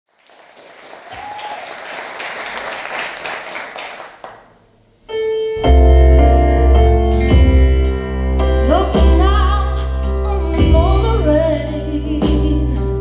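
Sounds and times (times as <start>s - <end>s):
audience applauding: 0.1s - 4.6s
sustained piano chord: 5.3s - 11.6s.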